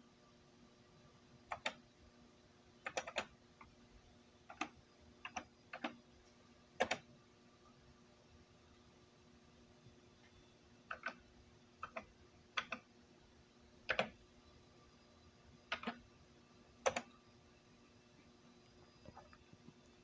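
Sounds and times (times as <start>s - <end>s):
faint electronic hum: 0.0s - 20.0s.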